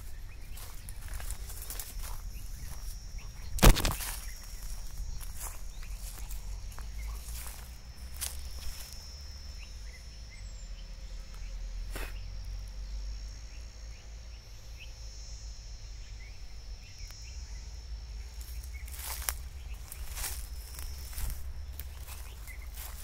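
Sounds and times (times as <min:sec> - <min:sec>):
bird chirps: 0:00.0 - 0:07.6, 0:18.5 - 0:23.0
insect drone: 0:00.0 - 0:23.0.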